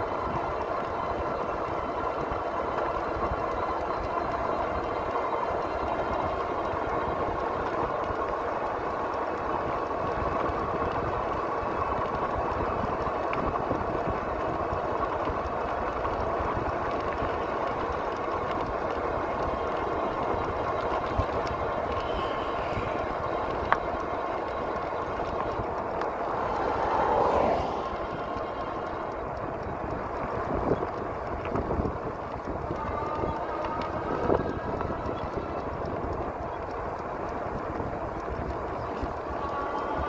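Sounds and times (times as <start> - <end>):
tyre noise on road: 0.0 - 40.0
wind rushing over microphone: 24.8 - 40.0.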